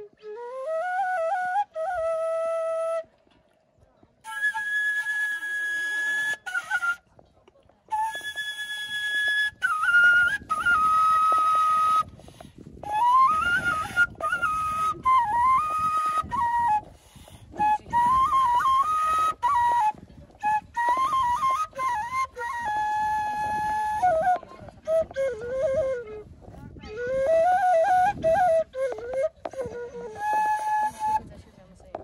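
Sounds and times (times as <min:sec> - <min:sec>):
solo flute melody: 0:00.0 - 0:03.4, 0:04.2 - 0:07.3, 0:07.9 - 0:31.4.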